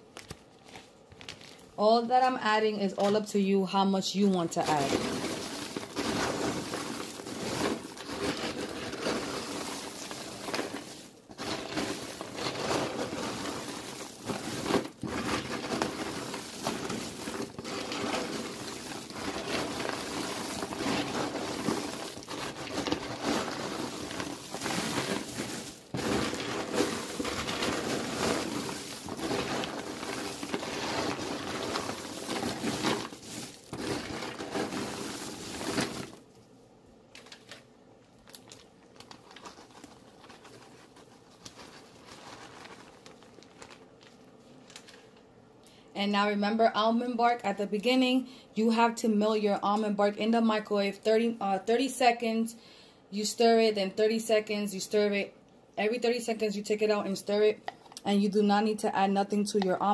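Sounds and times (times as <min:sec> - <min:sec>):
popcorn rustling and crunching: 0:00.0 - 0:01.8, 0:02.9 - 0:45.3, 0:57.7 - 0:59.9.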